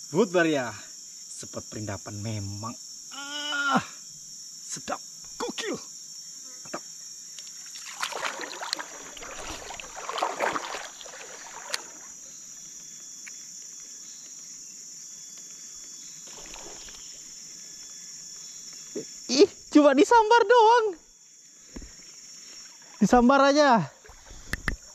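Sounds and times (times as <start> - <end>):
forest insects droning: 0.0 - 24.9
stream water splashing: 7.6 - 12.2, 16.2 - 17.2, 21.8 - 24.9.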